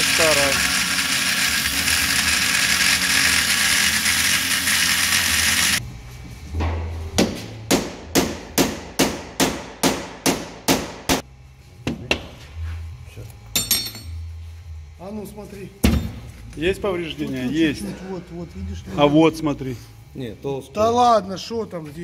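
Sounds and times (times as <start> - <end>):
angle grinder cutting steel: 0.0 - 5.8
hammer striking metal: 13.5 - 14.2.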